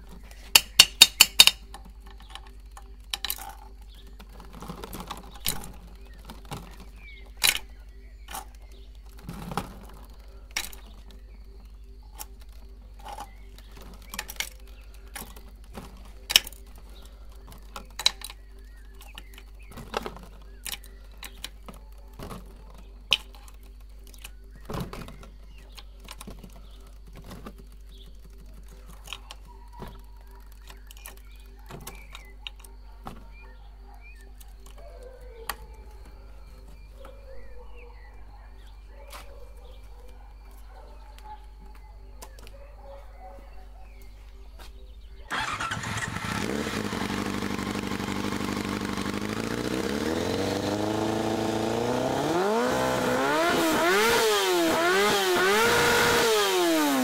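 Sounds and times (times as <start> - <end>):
sharp clicks: 0.0 - 33.3
plastic tray crinkling: 0.0 - 33.4.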